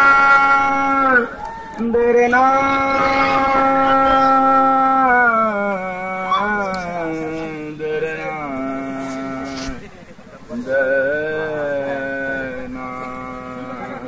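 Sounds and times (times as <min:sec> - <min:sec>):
person wailing: 0:02.5 - 0:05.1.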